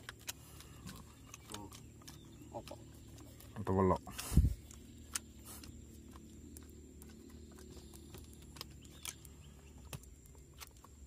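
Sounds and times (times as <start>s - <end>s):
low steady background noise: 0.0s - 11.0s.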